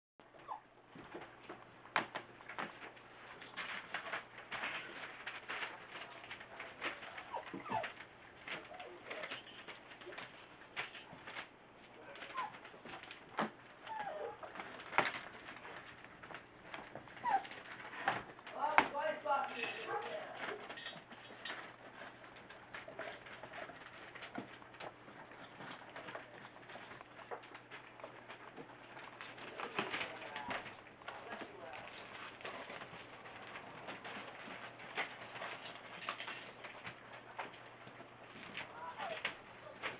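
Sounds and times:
puppies squeaking and whining: 0.2 - 1.9, 6.5 - 15.2, 16.6 - 18.7, 19.5 - 24.5, 37.9 - 39.9
scuffling and rustling: 0.4 - 39.9.

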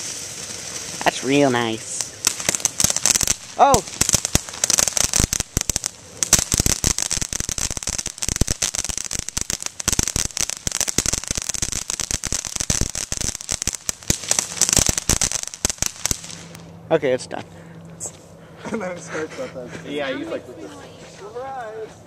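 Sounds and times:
firework fountain hissing and crackling: 0.0 - 16.6.

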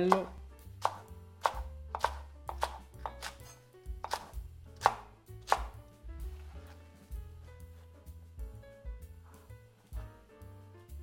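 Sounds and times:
knife chopping on wooden board: 0.0 - 5.8.

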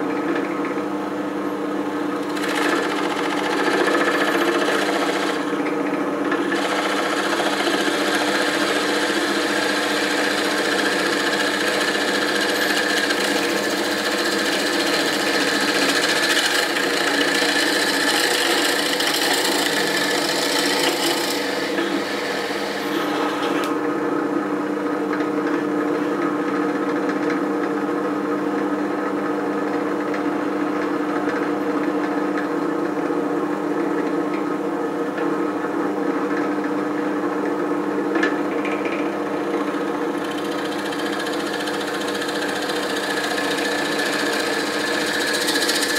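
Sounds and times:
drill press motor running: 1.9 - 24.0, 38.2 - 45.9
drill bit boring into wood: 2.2 - 5.6, 6.4 - 23.7, 39.6 - 45.9.

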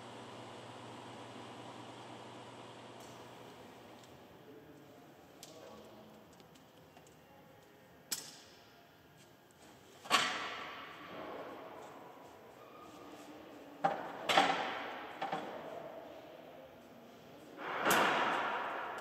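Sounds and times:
metal clanks and knocks echoing: 17.6 - 19.0.

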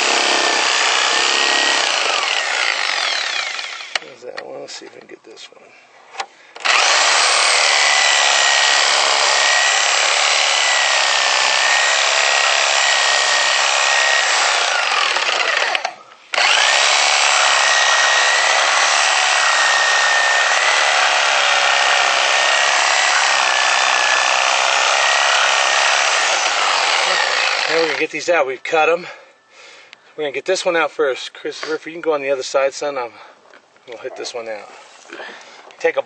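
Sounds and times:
reciprocating saw cutting metal: 0.0 - 4.0, 6.6 - 28.1.

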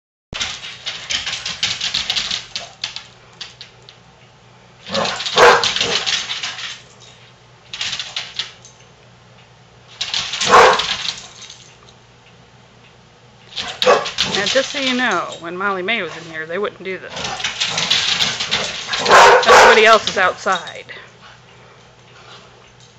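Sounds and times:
dog claws clattering on wood floor: 0.4 - 4.0, 4.9 - 8.9, 9.9 - 12.0, 13.5 - 15.4, 17.1 - 20.7
dogs barking: 4.9 - 6.1, 10.4 - 11.0, 13.6 - 14.6, 17.2 - 20.3.

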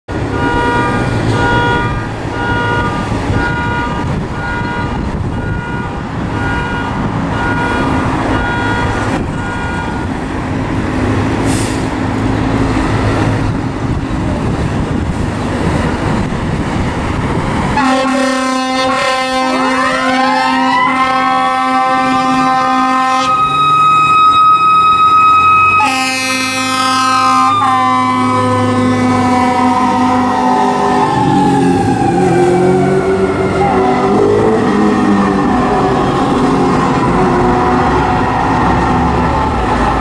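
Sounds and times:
loud air horn: 0.3 - 10.2, 17.8 - 35.8, 36.9 - 38.6.

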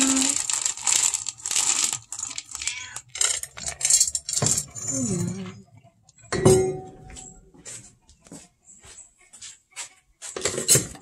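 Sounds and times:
kibble rattling into bowl: 0.0 - 4.8
ringing bowl clank: 6.3 - 7.0.

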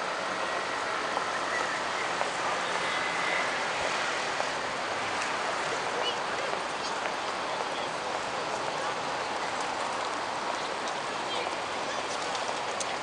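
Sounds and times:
traffic of passing cars and trucks: 0.0 - 13.0.

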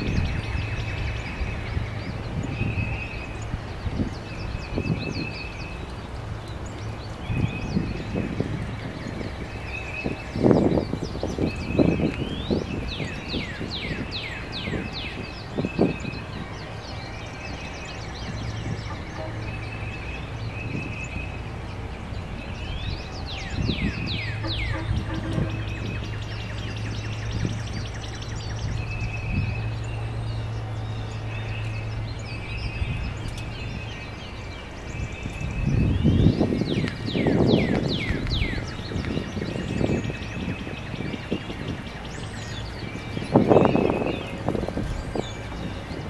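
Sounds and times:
songbirds singing: 0.0 - 46.0.

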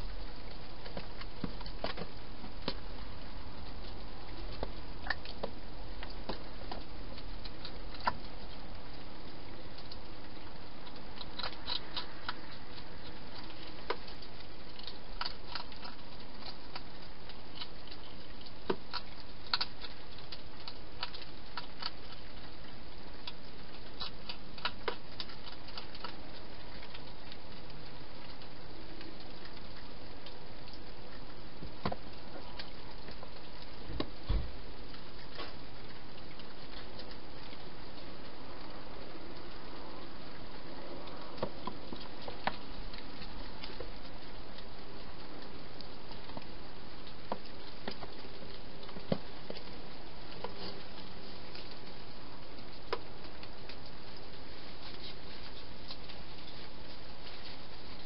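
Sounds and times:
hedgehog chewing clicks: 0.0 - 58.0.

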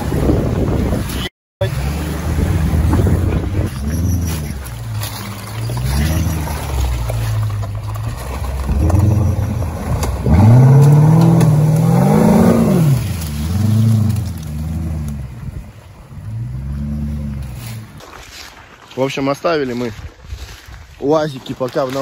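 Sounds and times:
off-road vehicle engine revving: 1.6 - 18.0.

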